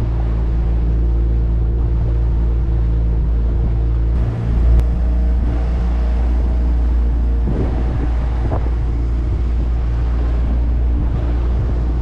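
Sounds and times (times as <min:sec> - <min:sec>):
outboard motor droning: 0:00.0 - 0:12.0.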